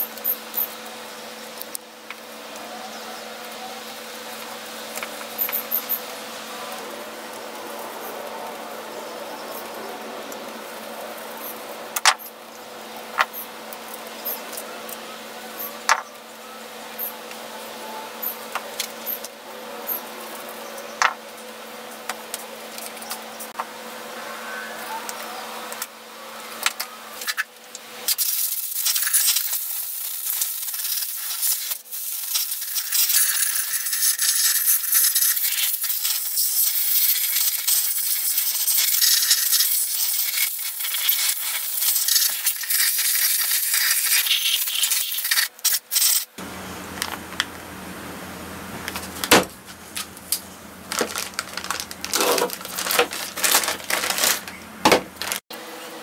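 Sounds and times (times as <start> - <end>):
low machine hum: 46.4 - 56.0
plastic bag crinkling: 48.9 - 55.4.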